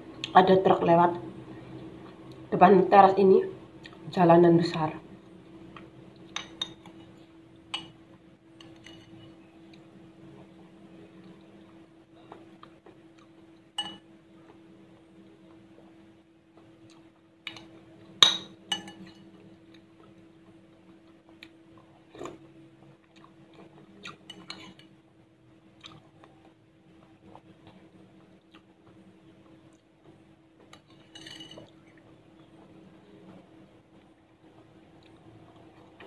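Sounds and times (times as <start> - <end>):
metal spoon clinking on ceramic bowl: 7.7 - 8.0, 8.6 - 9.3, 13.8 - 14.0, 18.2 - 19.2, 31.1 - 31.7.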